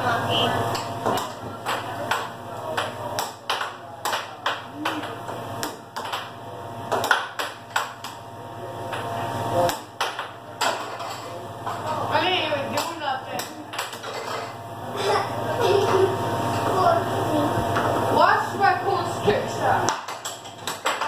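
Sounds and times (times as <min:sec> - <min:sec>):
air hockey mallets and puck clacking: 0:00.7 - 0:08.2, 0:08.9 - 0:11.8, 0:19.9 - 0:21.0
air blower low hum: 0:14.5 - 0:19.9.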